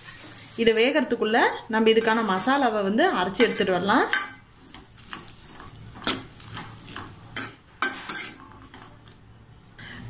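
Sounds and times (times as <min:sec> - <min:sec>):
faint sizzle: 0:00.0 - 0:10.0
ladle scraping metal pan: 0:03.3 - 0:08.9.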